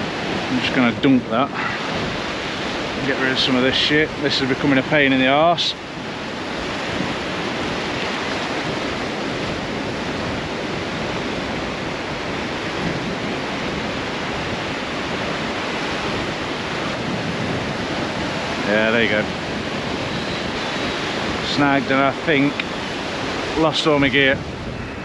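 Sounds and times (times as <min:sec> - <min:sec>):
sea surf breaking on beach: 0:00.0 - 0:25.0.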